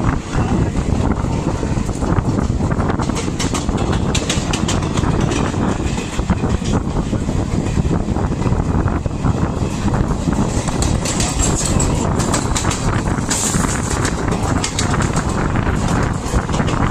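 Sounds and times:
rushing air: 0.0 - 16.9
train wheels rumbling on rails: 0.0 - 16.9
wheels clattering over rail joints: 1.8 - 7.2, 10.0 - 16.9.

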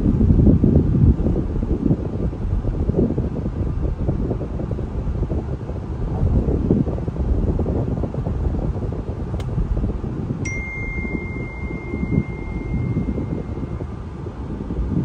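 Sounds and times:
car road and wind noise: 0.0 - 15.0
high warning chime: 10.4 - 14.1.

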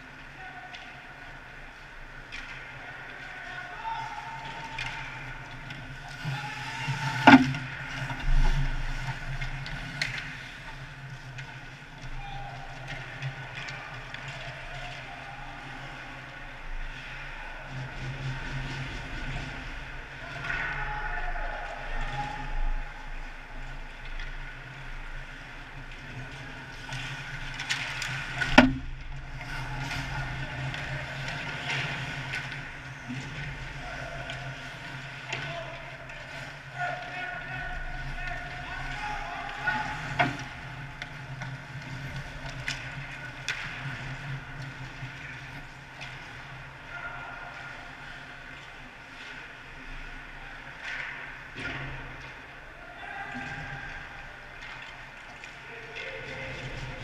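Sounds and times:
hockey stick and skate clicks: 4.4 - 16.0, 22.0 - 46.7.

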